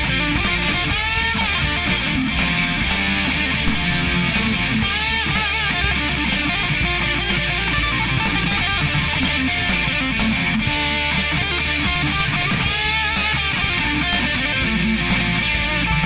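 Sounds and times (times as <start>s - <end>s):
heavy rock music electric guitar: 0.0s - 16.0s.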